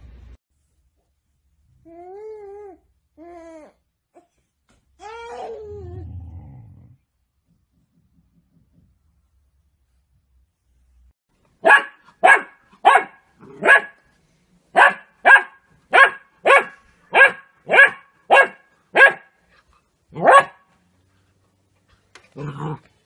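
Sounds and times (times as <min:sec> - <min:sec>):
puppy barking: 0:11.6 - 0:14.0, 0:14.7 - 0:19.4, 0:20.1 - 0:20.7.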